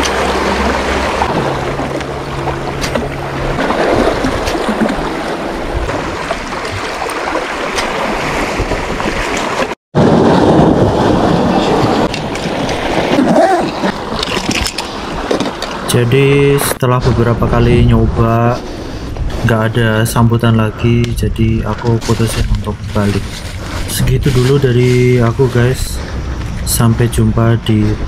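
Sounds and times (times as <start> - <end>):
wind on microphone: 0.0 - 15.9, 16.7 - 27.1
sea waves washing against rocks: 0.0 - 16.3.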